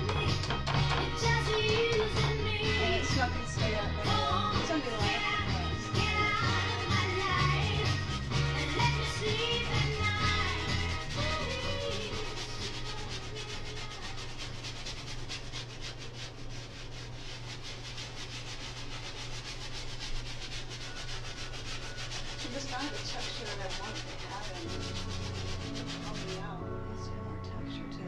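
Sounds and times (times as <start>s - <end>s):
paintbrush scrubbing on canvas: 4.6s - 26.6s.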